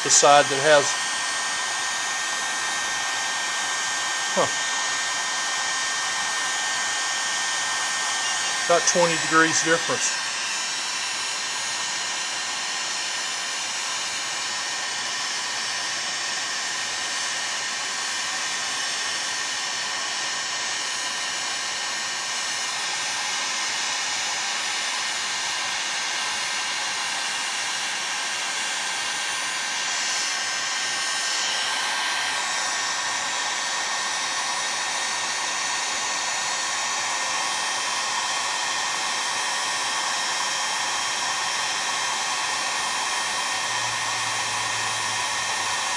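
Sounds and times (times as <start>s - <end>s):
heat gun blowing: 0.0s - 45.9s.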